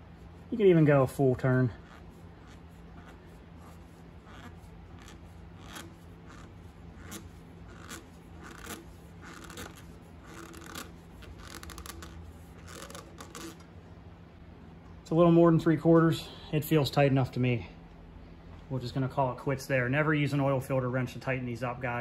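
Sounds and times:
glove scraping on oil filter: 0:00.0 - 0:13.7
steady low hum: 0:00.0 - 0:22.0.

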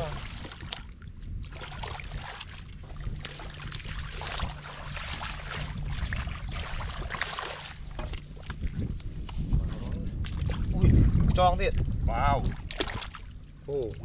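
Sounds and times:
hands splashing in muddy water: 0:03.2 - 0:08.8, 0:12.5 - 0:13.3.

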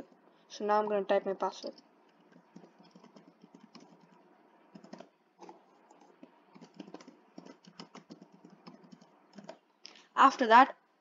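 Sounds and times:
computer keyboard typing: 0:01.5 - 0:09.6.

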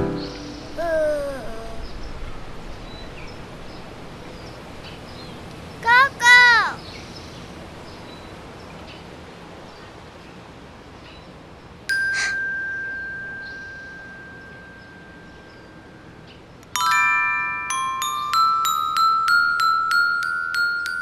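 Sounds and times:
metal railings chiming when tapped: 0:11.9 - 0:21.0.

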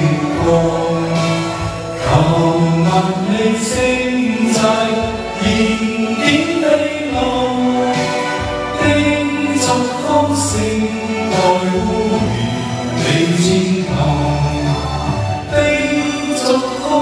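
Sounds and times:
karaoke backing track: 0:00.0 - 0:17.0.

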